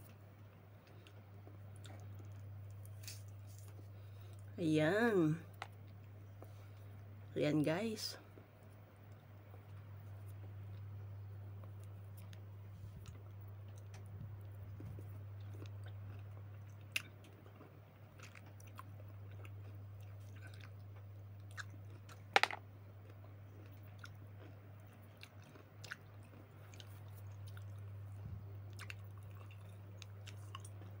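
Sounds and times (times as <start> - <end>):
person chewing and biting fruit: 0.8 - 4.0, 11.6 - 22.2, 23.5 - 31.0
low hum: 26.5 - 31.0.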